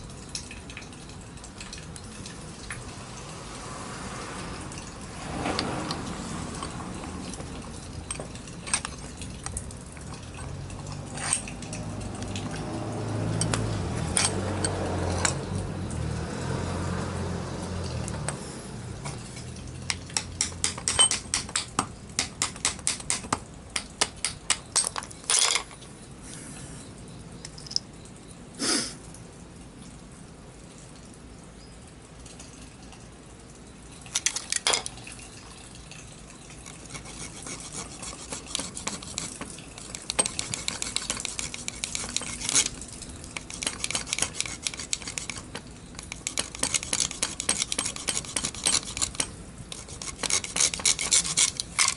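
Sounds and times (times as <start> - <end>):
metal clicks and taps: 6.6 - 12.7, 13.4 - 15.5, 38.9 - 49.4.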